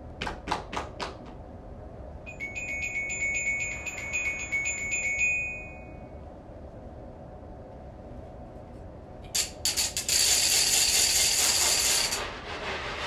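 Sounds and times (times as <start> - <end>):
rapid bell-like trill: 2.3 - 6.1.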